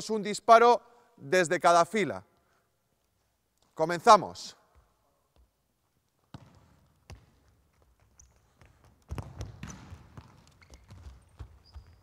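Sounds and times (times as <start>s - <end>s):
ball kicked and bouncing on wooden floor: 6.2s - 12.0s.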